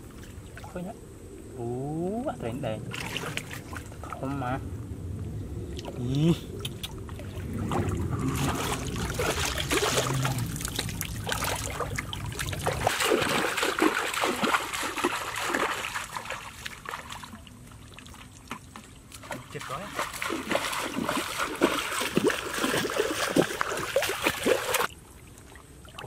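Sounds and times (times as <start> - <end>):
water splashing and sloshing: 0.0 - 0.9, 2.7 - 26.0
low rumble: 2.3 - 12.9.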